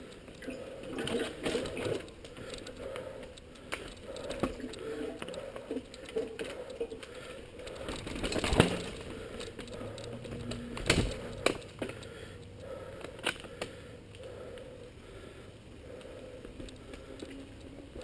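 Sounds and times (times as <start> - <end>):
bike rattling over rocks: 6.9 - 12.0.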